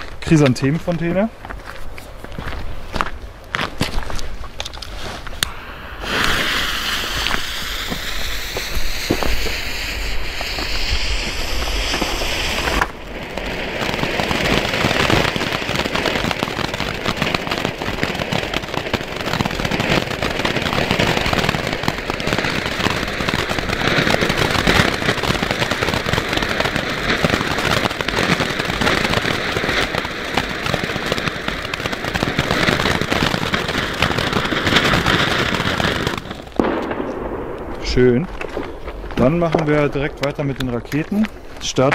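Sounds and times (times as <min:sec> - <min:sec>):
firework fountain crackling: 0:00.0 - 0:41.9
lit fuse hissing: 0:05.4 - 0:13.0.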